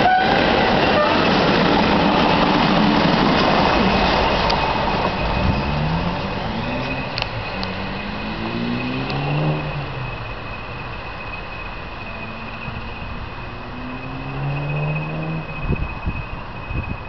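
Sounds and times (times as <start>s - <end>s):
locomotive high whistle: 0.0s - 1.4s
diesel locomotive engines: 0.0s - 17.0s.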